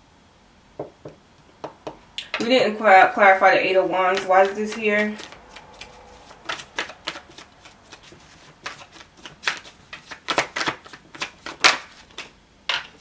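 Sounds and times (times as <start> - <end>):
cards being shuffled: 4.1 - 13.0.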